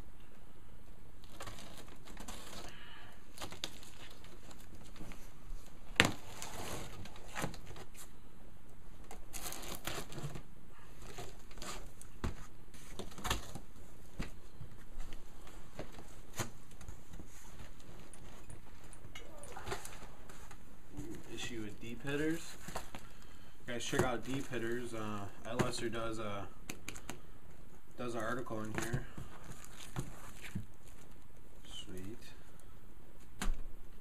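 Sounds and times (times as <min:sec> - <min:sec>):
cardboard flaps rustling: 0:09.0 - 0:23.1
knife slitting packing tape: 0:09.3 - 0:10.4.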